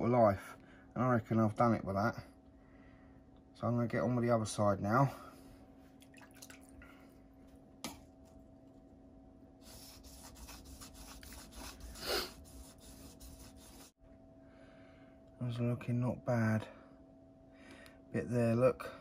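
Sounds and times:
faint steady hum: 0:00.0 - 0:19.0
water dripping and splashing: 0:06.0 - 0:06.9
whetstone being rubbed: 0:09.6 - 0:13.9.

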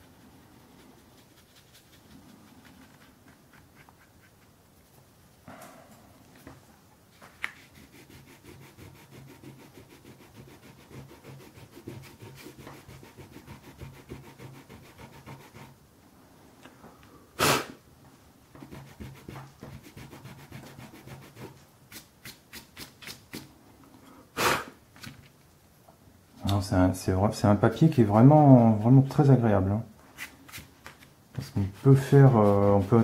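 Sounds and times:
paintbrush scrubbing on paper: 0:00.0 - 0:05.0, 0:07.4 - 0:15.8, 0:18.6 - 0:23.5, 0:31.4 - 0:33.0.

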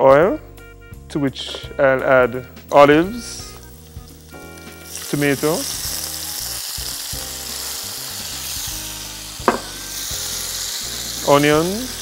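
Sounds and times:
food sizzling in a frying pan: 0:03.2 - 0:12.0
tomatoes poured into hot oil: 0:03.2 - 0:12.0.

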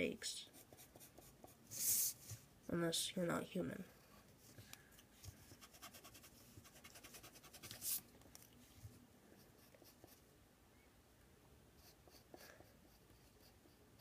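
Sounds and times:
pencil scratching on paper: 0:00.4 - 0:02.2, 0:05.4 - 0:08.0, 0:09.4 - 0:10.2, 0:11.8 - 0:14.0.

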